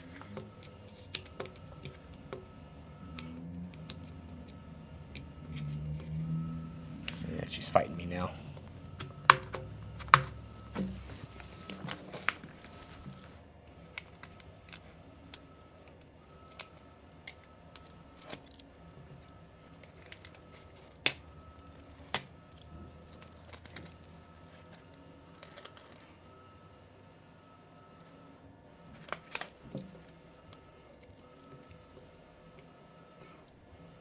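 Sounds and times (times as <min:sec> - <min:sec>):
paper crinkling: 0:11.0 - 0:15.3, 0:22.9 - 0:26.1.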